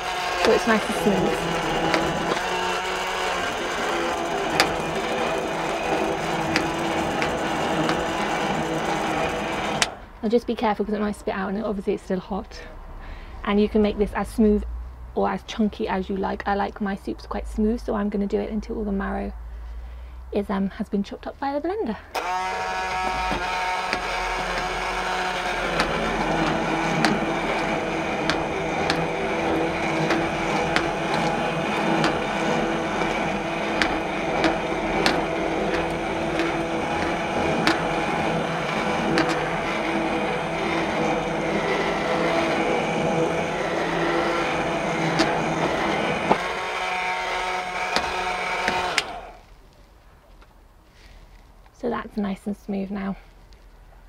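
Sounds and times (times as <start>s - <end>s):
hand blender running: 0.0s - 10.0s, 22.2s - 49.4s.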